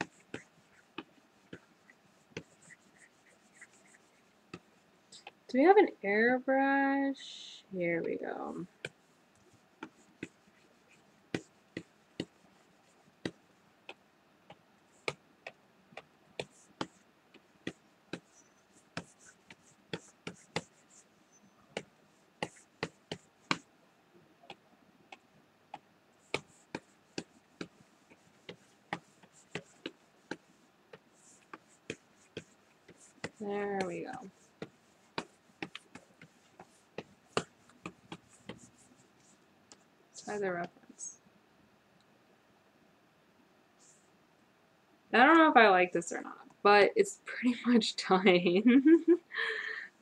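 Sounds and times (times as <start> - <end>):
stylus tapping on drawing tablet: 2.3 - 5.4, 11.3 - 12.4, 13.2 - 21.0, 21.8 - 23.7, 25.1 - 39.8.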